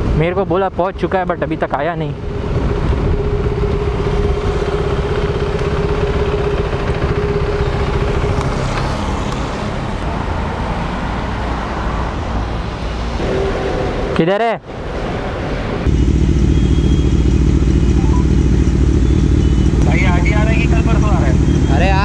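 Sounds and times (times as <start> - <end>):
steady tone: 2.1 - 8.6
motorcycle engine running: 2.2 - 9.2, 15.9 - 22.0.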